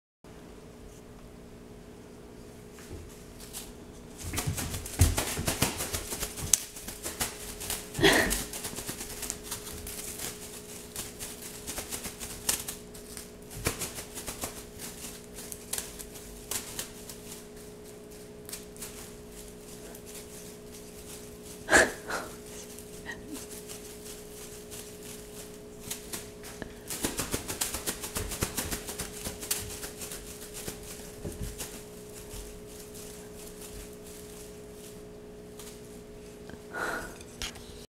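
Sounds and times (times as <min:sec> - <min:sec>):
steady low hum: 0:00.3 - 0:37.9
cat claws tapping on wooden floor: 0:04.3 - 0:10.4.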